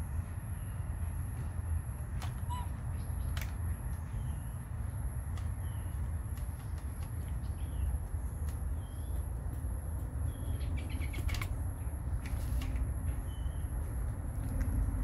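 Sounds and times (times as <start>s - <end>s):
sharp clicks: 3.2s - 4.0s
small bird chirping: 10.2s - 11.5s.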